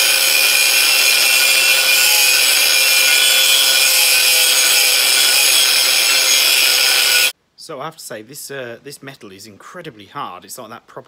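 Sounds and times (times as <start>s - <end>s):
angle grinder cutting iron: 0.0s - 7.3s.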